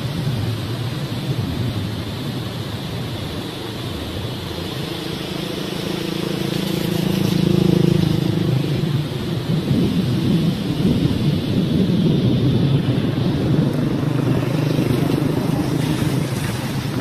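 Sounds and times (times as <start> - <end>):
rushing rumble: 0.0 - 17.0
vehicle engine hum: 0.0 - 17.0.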